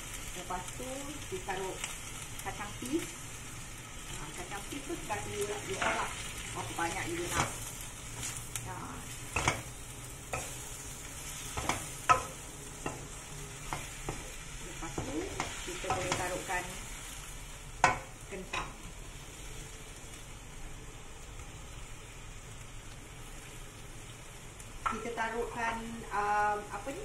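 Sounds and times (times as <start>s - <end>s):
food sizzling: 0.0s - 27.0s
spatula scraping wok: 5.2s - 19.4s.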